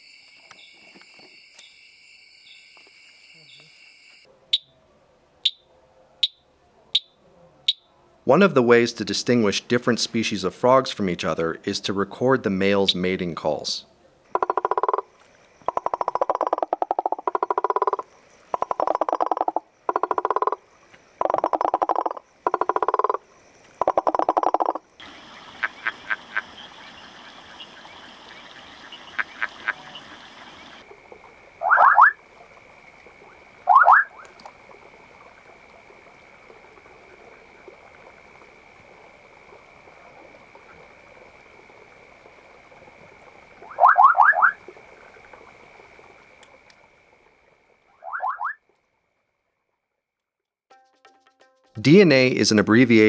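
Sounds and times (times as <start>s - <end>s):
treefrog clicking: 6.2s - 7.1s, 7.7s - 7.9s, 14.3s - 20.6s, 21.2s - 32.2s
frogs pulsed trills: 6.2s - 7.9s, 14.3s - 49.6s
frog upward-sweeping calls: 23.8s - 30.9s, 31.6s - 32.2s, 33.2s - 34.8s, 43.6s - 44.7s, 47.9s - 48.6s.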